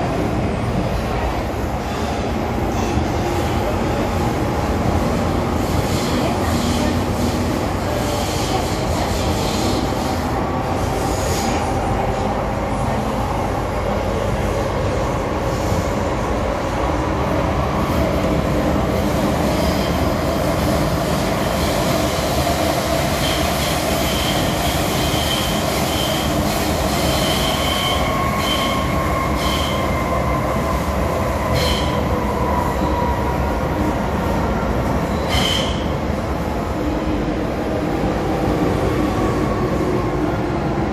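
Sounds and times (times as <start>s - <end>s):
subway train rumbling in tunnel: 0.0s - 40.9s
high wheel squeals: 27.1s - 30.0s.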